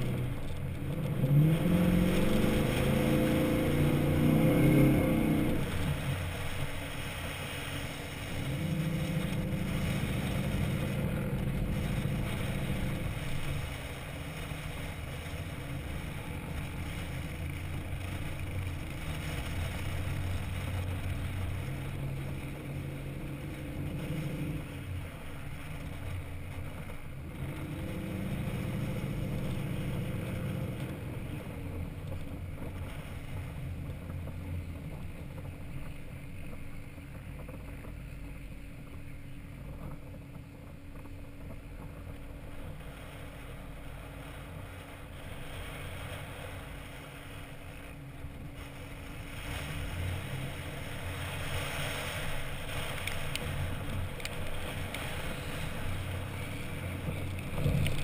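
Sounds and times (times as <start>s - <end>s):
truck engine revving: 0.0s - 35.0s, 47.7s - 58.0s.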